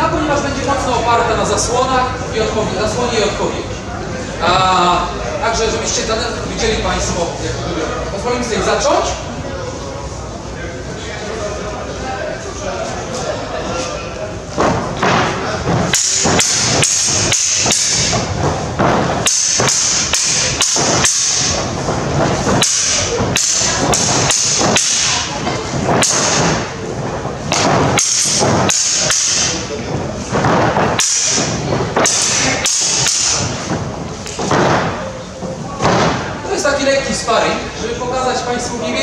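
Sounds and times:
sabre blades clashing: 15.0 - 26.7, 27.5 - 29.7, 30.3 - 33.6.

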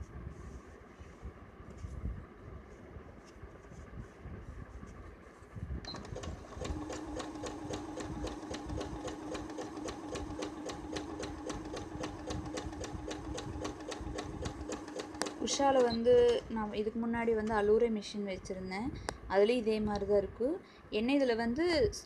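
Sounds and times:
sewing machine motor hum: 5.9 - 16.8
rapid needle ticking: 6.1 - 16.8.

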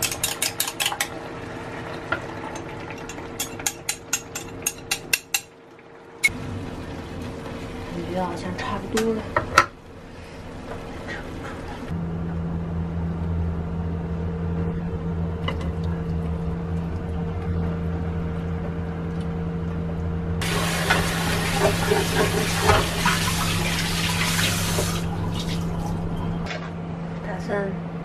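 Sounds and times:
steady low hum: 5.9 - 23.8.

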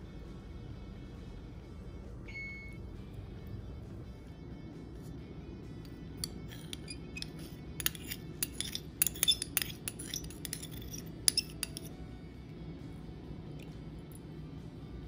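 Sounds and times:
spoon clinking on glass dish: 6.2 - 12.0.

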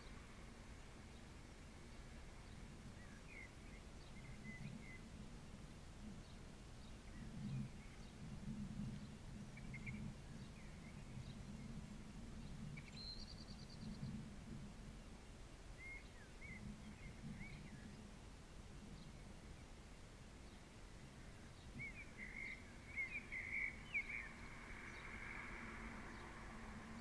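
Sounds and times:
low uneven rumble: 0.0 - 27.0
birds chirping: 20.4 - 27.0
bird trill: 21.8 - 25.2.

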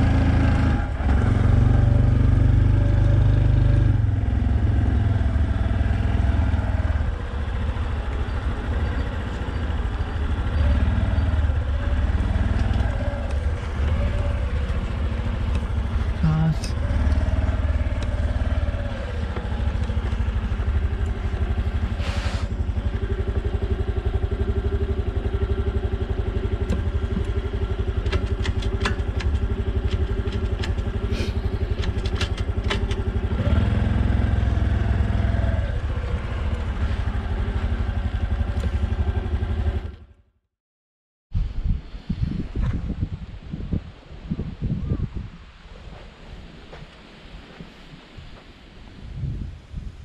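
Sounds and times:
motorcycle engine running: 0.0 - 40.3
light clicks and clatter: 28.0 - 33.1.

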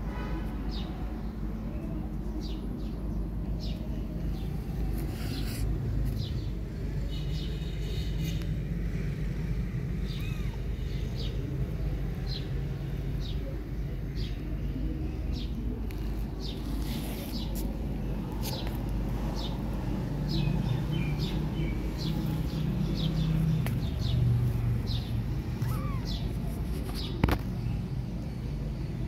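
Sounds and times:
small birds chirping: 0.7 - 29.0
steady low rumble: 9.1 - 29.0.

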